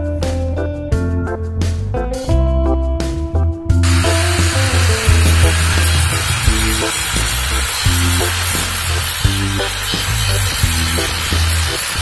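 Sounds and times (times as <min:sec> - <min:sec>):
instrumental background music: 0:00.0 - 0:12.0
strong bass line: 0:01.1 - 0:12.0
percussion hits: 0:03.8 - 0:12.0.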